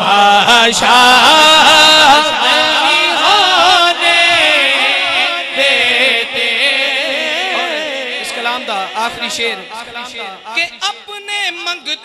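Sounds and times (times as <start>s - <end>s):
man chanting into microphone: 0.0s - 12.0s.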